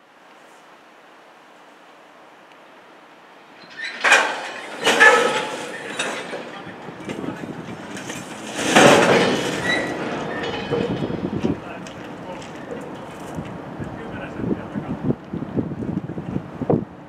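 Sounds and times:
train wheels knocking over rail joints: 3.6s - 14.0s.

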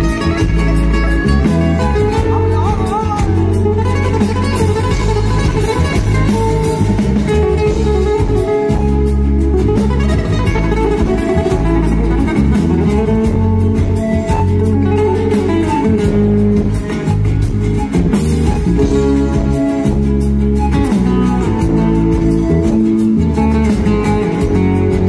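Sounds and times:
plucked guitars: 0.0s - 25.0s
steady bass line: 0.0s - 25.0s.

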